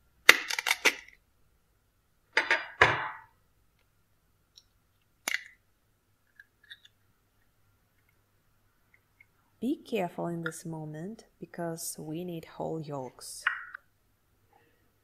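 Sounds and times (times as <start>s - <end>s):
eggshell cracking open: 0.2s - 1.2s, 4.5s - 5.6s, 6.2s - 7.5s.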